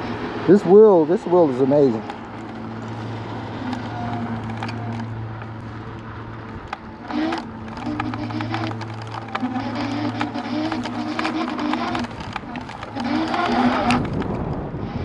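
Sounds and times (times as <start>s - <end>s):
electric scooter low hum: 0.0s - 15.0s
higher motor whine: 0.0s - 15.0s
rattles and knocks from bumps: 6.4s - 14.6s.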